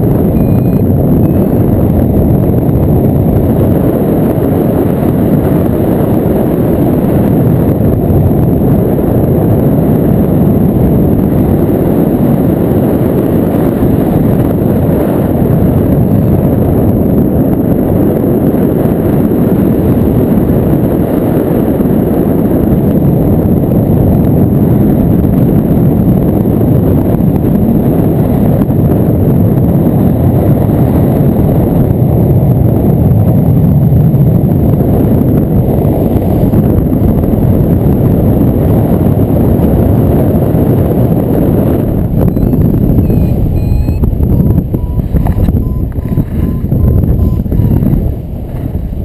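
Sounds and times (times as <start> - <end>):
wind buffeting microphone: 0.0 - 49.0.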